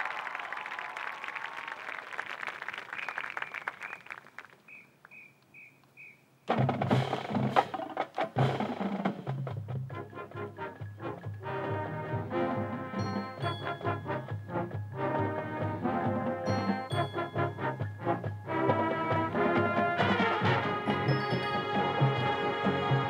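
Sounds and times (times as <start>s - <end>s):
audience applause: 0.0s - 4.6s
drums and cymbal hits: 6.5s - 12.0s, 12.9s - 23.0s
marching band playing: 6.5s - 23.0s
brass: 8.4s - 23.0s.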